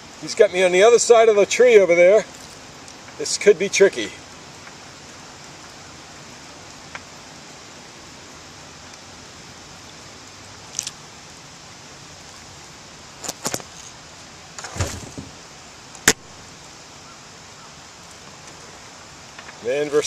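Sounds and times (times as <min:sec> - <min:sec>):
faint steady hiss: 0:00.0 - 0:20.0
kayak knocking against logs: 0:14.6 - 0:15.4.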